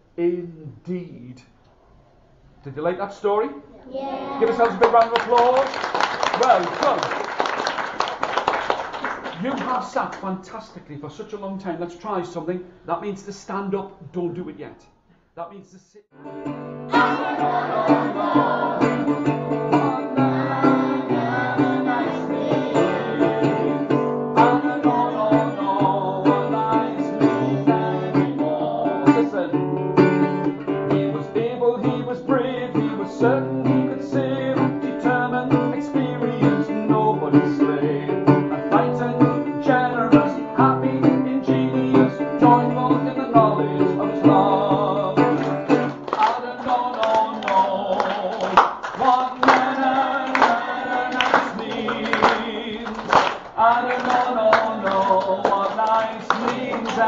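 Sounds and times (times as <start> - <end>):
acoustic guitar strumming: 16.2 - 48.3
man singing: 16.9 - 29.7, 30.5 - 57.0.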